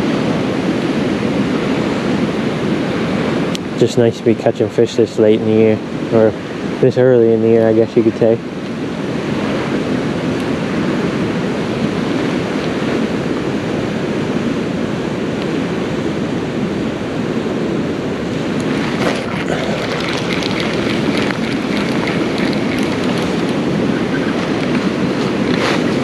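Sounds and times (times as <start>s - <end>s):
wind buffeting microphone: 0.0s - 26.0s
creek water rushing: 18.0s - 26.0s.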